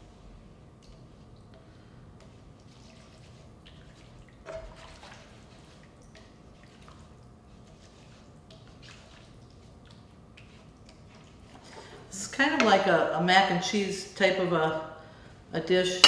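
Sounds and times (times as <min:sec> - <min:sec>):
utensil stirring thick sauce: 0:02.1 - 0:11.8.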